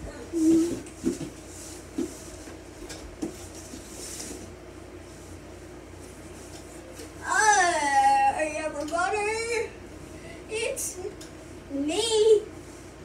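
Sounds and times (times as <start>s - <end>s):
steady low hum: 0.0s - 13.0s
rubbing and handling noises: 0.3s - 7.2s.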